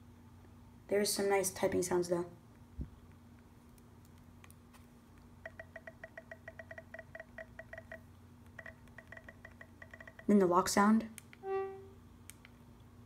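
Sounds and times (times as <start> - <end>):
phone keyboard typing ticks: 5.4 - 10.4.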